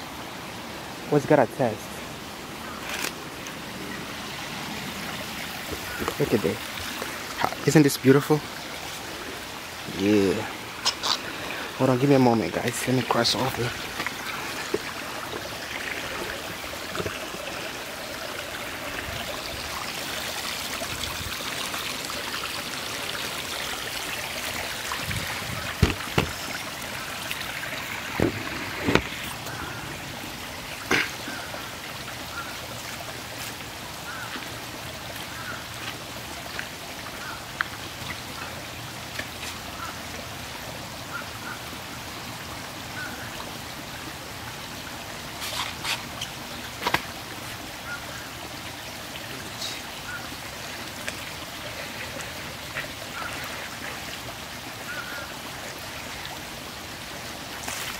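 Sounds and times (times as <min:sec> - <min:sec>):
stream trickling: 0:00.0 - 0:57.9
sharp knocks: 0:25.8 - 0:26.4.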